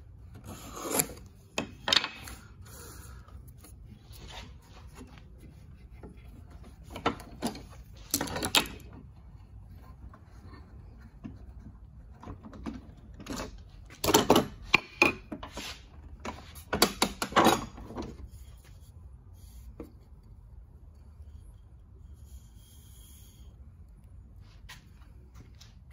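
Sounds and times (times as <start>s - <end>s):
clamps knocking and clattering: 1.5s - 2.4s, 6.7s - 9.0s, 11.2s - 15.5s, 16.2s - 18.2s.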